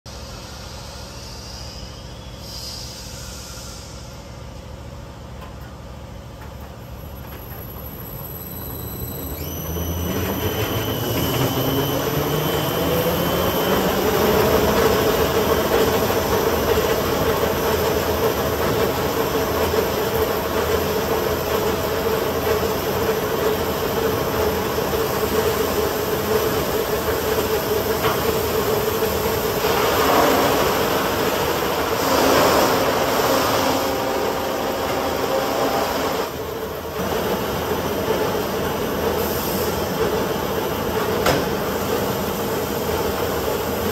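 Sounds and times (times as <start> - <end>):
sanding machine whine: 7.0 - 41.0
loud rushing noise: 28.8 - 36.6.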